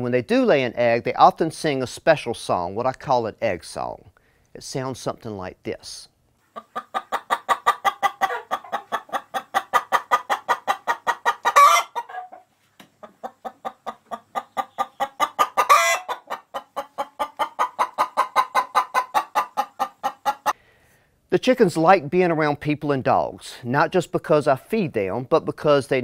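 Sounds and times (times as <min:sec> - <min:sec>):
hen clucking: 0:06.4 - 0:20.6
hen squawking: 0:06.6 - 0:12.4, 0:13.2 - 0:20.6.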